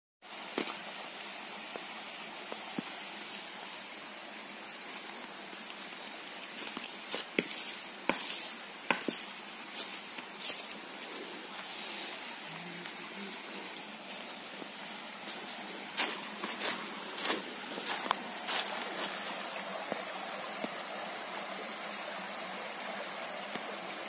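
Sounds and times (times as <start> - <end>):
forest stream hissing: 0.2 - 24.0
dry leaves crackling underfoot: 4.7 - 20.2.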